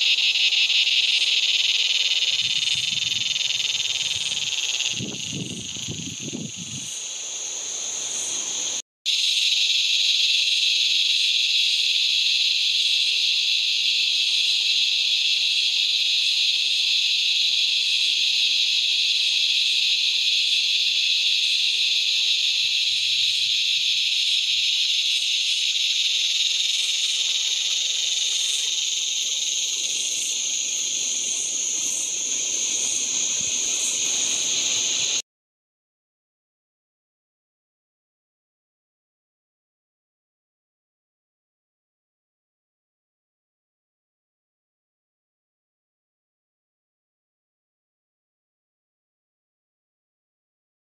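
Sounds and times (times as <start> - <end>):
cicada buzzing: 0.0 - 35.2.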